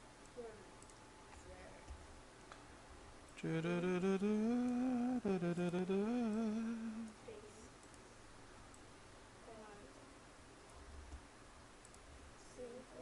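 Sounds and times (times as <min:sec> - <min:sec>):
man humming a tune: 0:03.4 - 0:07.2.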